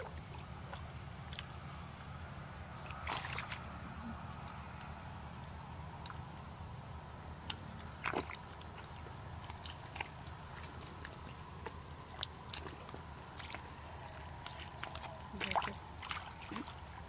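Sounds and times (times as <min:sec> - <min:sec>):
hands splashing in muddy water: 0:02.9 - 0:03.7, 0:07.5 - 0:16.8
feet squelching through mud: 0:02.9 - 0:03.8, 0:07.4 - 0:16.8.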